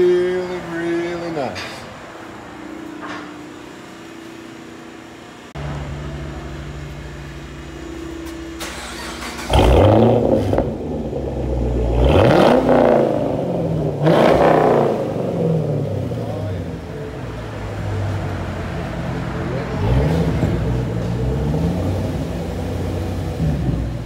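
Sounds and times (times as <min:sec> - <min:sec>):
car engine idling: 0:00.0 - 0:24.0
engine revving: 0:08.6 - 0:24.0.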